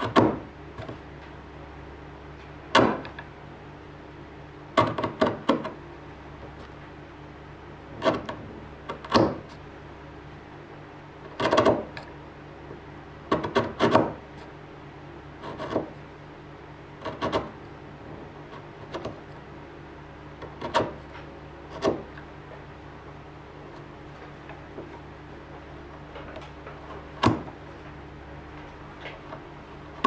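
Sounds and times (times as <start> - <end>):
chisel scraping wood: 7.9 - 9.6, 11.2 - 12.1, 13.3 - 14.5, 15.4 - 16.0, 17.0 - 17.6, 18.4 - 19.5, 20.4 - 22.2, 25.8 - 27.9.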